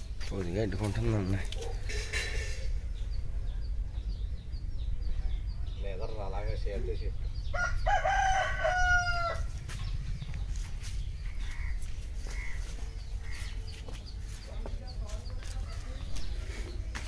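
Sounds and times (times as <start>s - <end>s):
steady low rumble: 0.0s - 17.0s
rooster crowing: 7.5s - 9.5s.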